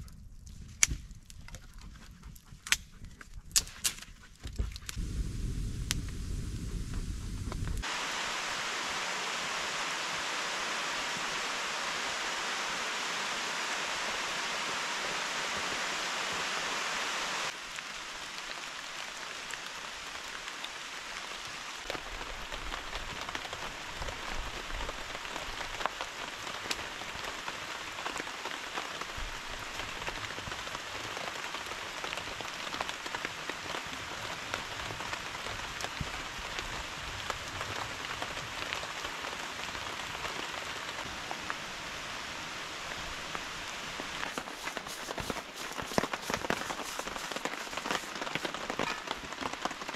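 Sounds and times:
rain drips and ticks: 0.0s - 5.0s, 5.8s - 8.0s, 8.7s - 49.9s
steady rain hissing: 4.9s - 49.9s.

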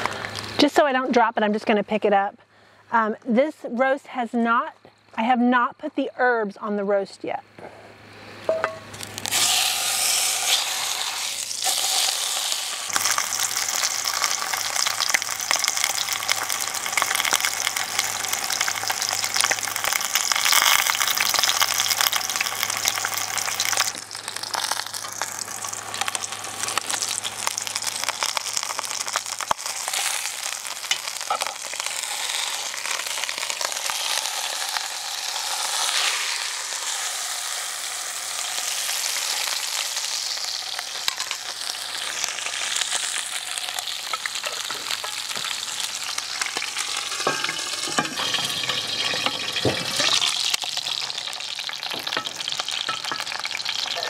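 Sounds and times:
meat sizzling in a pot: 8.5s - 54.0s.

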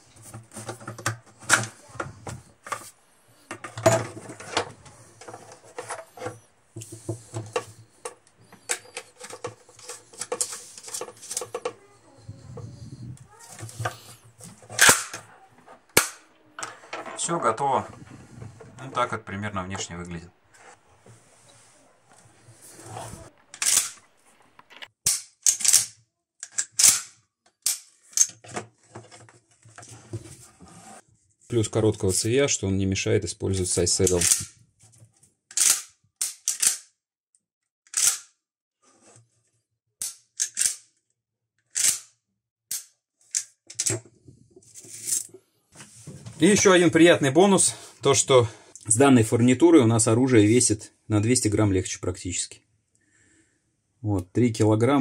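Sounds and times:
shotgun parts clicking and scraping: 0.2s - 11.8s, 13.6s - 18.7s, 23.2s - 29.9s, 34.0s - 34.6s, 35.5s - 36.9s, 37.9s - 38.3s, 40.0s - 40.9s, 41.7s - 42.1s.

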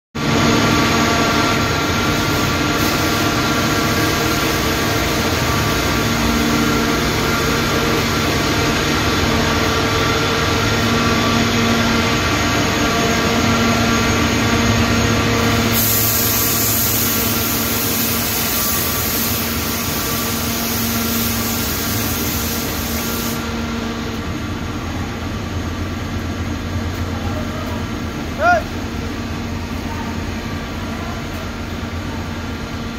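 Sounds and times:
industrial machines running: 0.2s - 32.9s
bright hiss: 15.7s - 23.6s.

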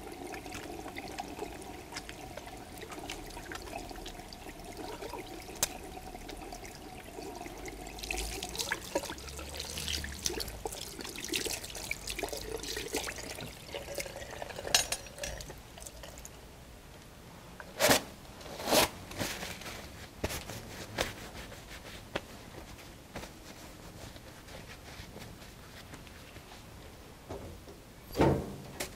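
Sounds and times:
soapy hands rubbing and splashing: 0.0s - 14.3s
tap water running into sink: 0.0s - 16.0s
paper towel rustling: 17.8s - 27.0s
hands rubbing paper towel: 19.2s - 26.7s.

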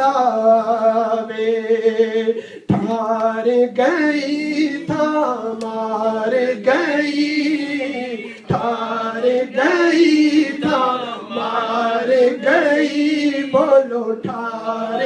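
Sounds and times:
man singing into a microphone: 0.0s - 15.0s
singer breathing: 2.3s - 2.7s, 8.2s - 8.5s.

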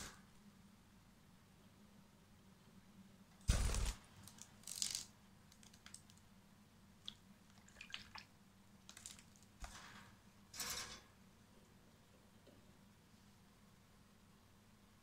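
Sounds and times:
wing-flapping: 3.5s - 4.1s.

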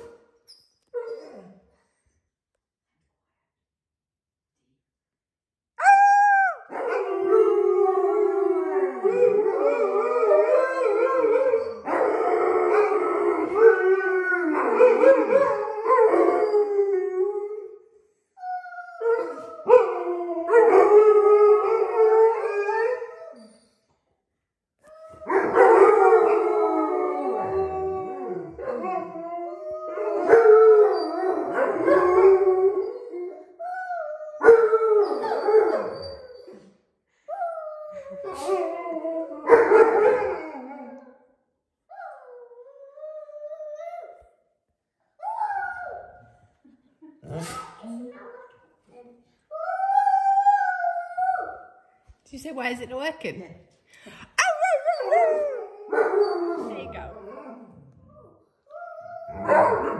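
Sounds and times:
dogs howling together: 5.8s - 17.7s, 18.8s - 23.5s, 25.2s - 36.6s, 37.4s - 41.2s, 41.9s - 44.2s, 45.2s - 46.2s, 49.5s - 51.8s, 54.4s - 58.0s, 58.7s - 59.9s.

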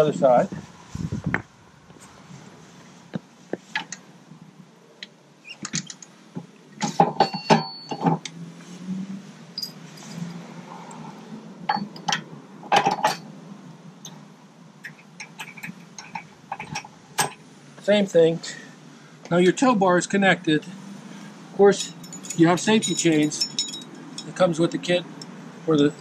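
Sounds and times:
metal clicks and clanks: 5.6s - 6.1s, 14.9s - 17.4s, 21.8s - 24.4s.

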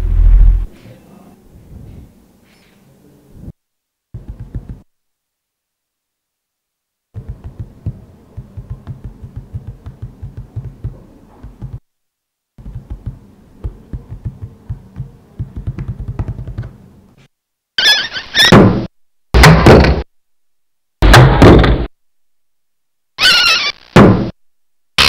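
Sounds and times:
rapid low thudding pulses: 0.0s - 0.7s.

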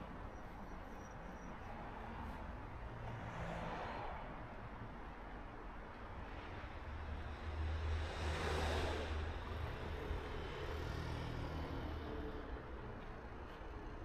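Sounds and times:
vehicle passing by: 7.5s - 12.7s.

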